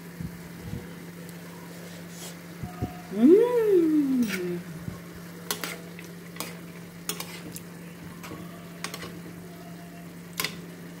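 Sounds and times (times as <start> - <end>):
food sizzling in frying pan: 5.2 - 10.9
utensil scraping pan: 5.5 - 7.5.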